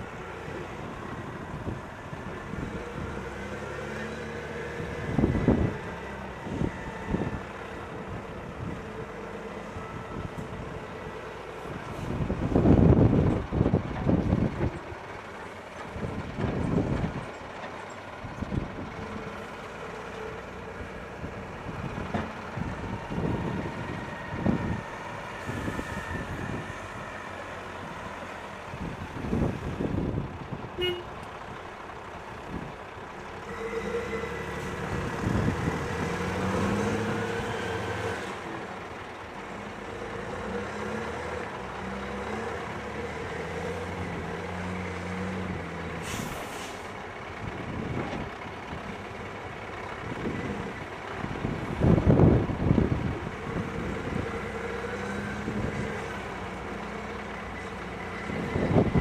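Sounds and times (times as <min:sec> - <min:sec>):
diesel truck engine pulling away: 0:00.0 - 0:59.0
wheel loader running: 0:00.0 - 0:59.0.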